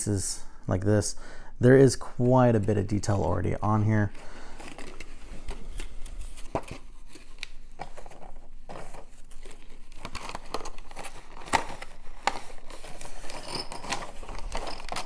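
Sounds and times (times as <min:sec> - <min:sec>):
plastic packaging crinkling: 0:04.0 - 0:15.0.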